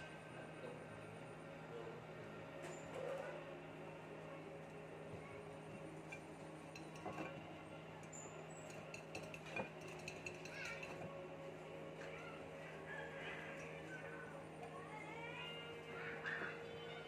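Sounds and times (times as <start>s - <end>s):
clinks on ceramic plate: 8.6s - 11.0s.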